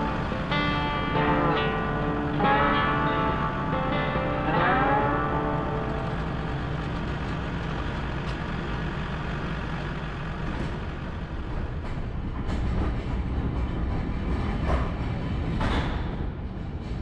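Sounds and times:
diesel tractor engine idling: 0.0s - 11.8s.

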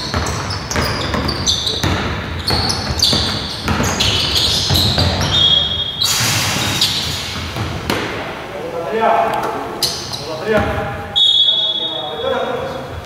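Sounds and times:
basketball bouncing on hardwood: 0.0s - 5.4s, 7.4s - 8.2s
sneakers squeaking on floor: 0.0s - 8.4s, 9.3s - 13.0s.

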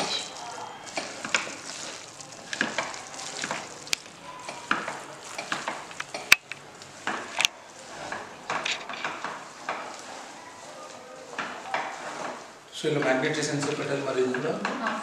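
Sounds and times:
hands squelching wet chicken: 0.0s - 7.3s.

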